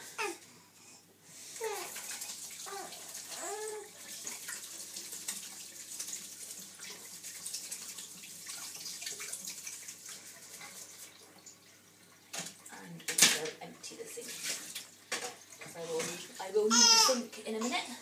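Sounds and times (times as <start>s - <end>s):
tap running into a sink: 12.3s - 13.6s, 14.4s - 16.2s.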